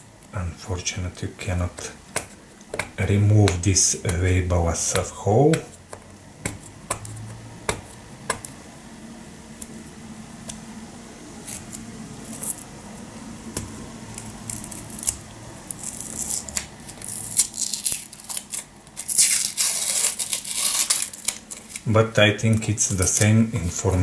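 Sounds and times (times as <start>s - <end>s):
paper label scraping and ripping: 11.4s - 12.6s, 14.1s - 21.9s.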